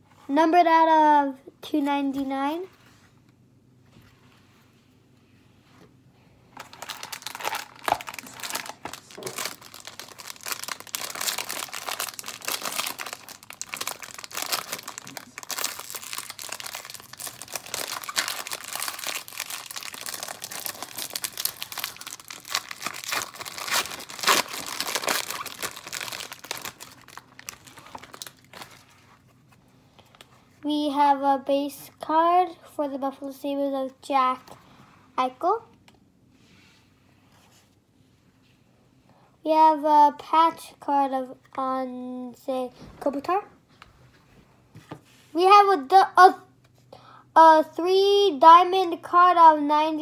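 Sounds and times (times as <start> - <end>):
foil wrapper crinkling: 6.6 - 29.2.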